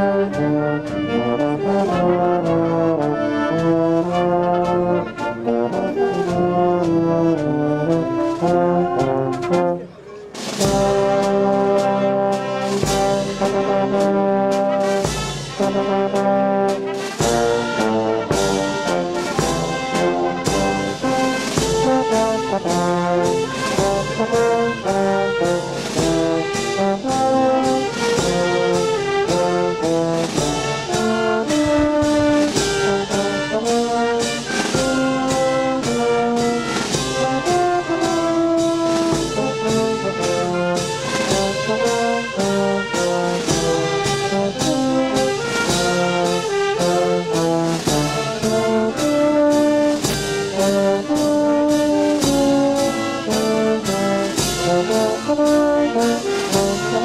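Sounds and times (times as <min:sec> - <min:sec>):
brass and saxophone tune: 0:00.0 - 0:57.0
bass drum and snare beat: 0:10.4 - 0:57.0.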